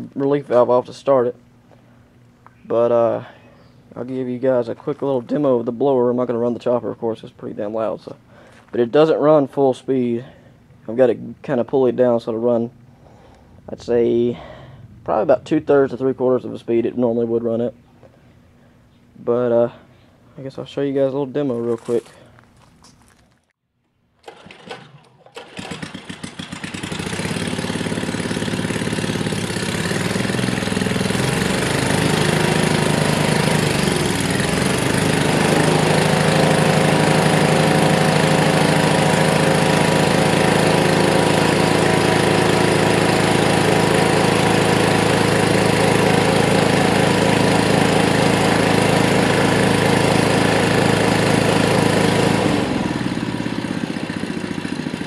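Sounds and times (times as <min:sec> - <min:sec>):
engine pull-start: 0:24.2 - 0:28.2
small gasoline engine running: 0:24.2 - 0:55.0.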